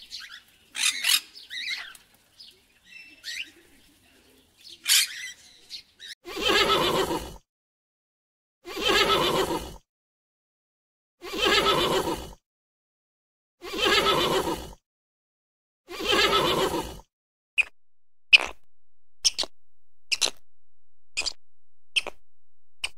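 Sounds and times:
horse neighing: 0:06.3 - 0:07.4, 0:08.7 - 0:09.7, 0:11.3 - 0:12.3, 0:13.6 - 0:14.7, 0:15.9 - 0:17.0.

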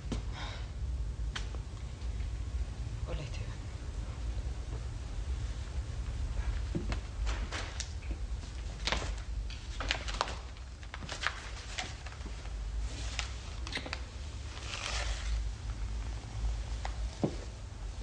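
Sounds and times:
steady low hum: 0:00.0 - 0:18.0
clothing and paper rustle: 0:06.4 - 0:16.1.

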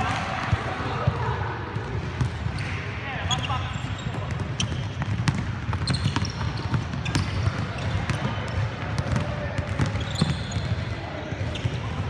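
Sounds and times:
sneaker squeaks: 0:02.4 - 0:12.0.

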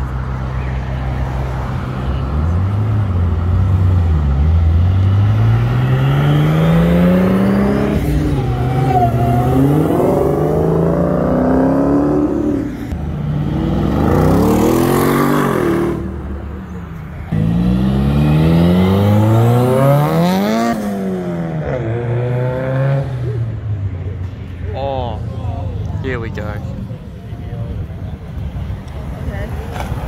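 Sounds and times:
car engines accelerating: 0:00.0 - 0:30.0
car engine revving: 0:02.2 - 0:23.4.

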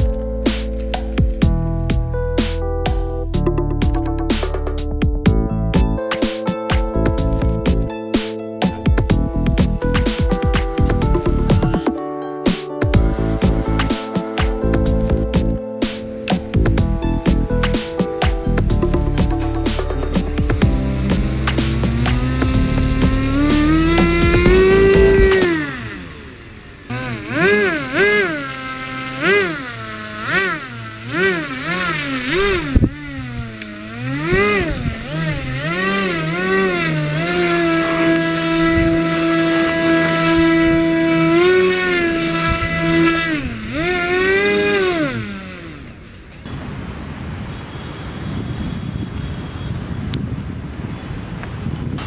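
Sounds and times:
electric motor and propeller revving: 0:04.3 - 0:08.0, 0:08.7 - 0:12.0, 0:12.9 - 0:46.5.

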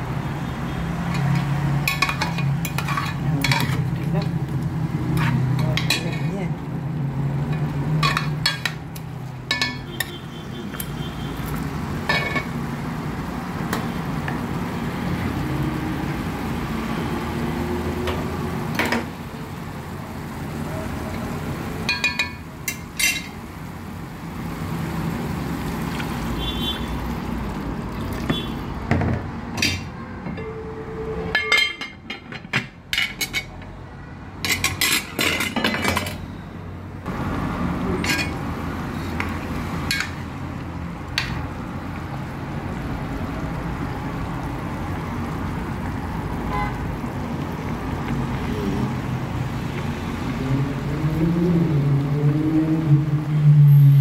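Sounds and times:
metal ladle scraping pot: 0:01.2 - 0:04.1, 0:05.0 - 0:06.3, 0:07.5 - 0:08.8
metal pot lid clattering: 0:08.0 - 0:08.8, 0:12.1 - 0:12.5, 0:29.6 - 0:30.4.

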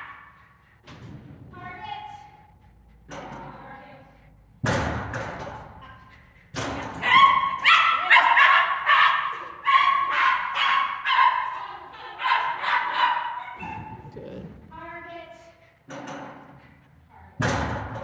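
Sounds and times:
thud: 0:00.8 - 0:01.7, 0:04.6 - 0:05.8, 0:17.4 - 0:18.0
small dog yipping: 0:07.0 - 0:11.6.

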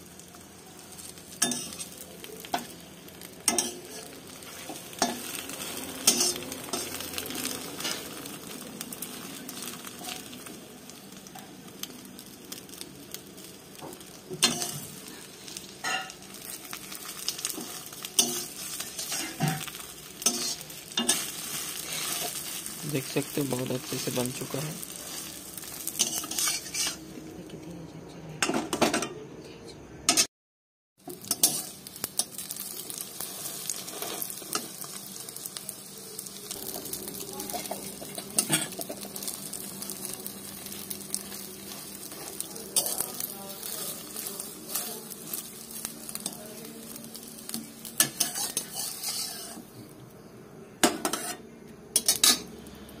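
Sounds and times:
omelette sizzling in a wok: 0:00.0 - 0:27.6, 0:31.0 - 0:53.0
spatula scraping a pan: 0:15.8 - 0:22.7, 0:25.9 - 0:27.0, 0:33.2 - 0:34.6, 0:48.0 - 0:49.7, 0:50.9 - 0:51.4.

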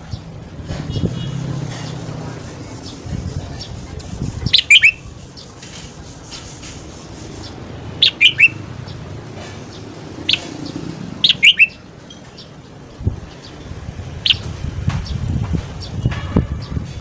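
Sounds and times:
bulbul singing whistled notes: 0:04.5 - 0:05.0, 0:08.0 - 0:08.6, 0:11.2 - 0:11.8, 0:14.2 - 0:14.5.

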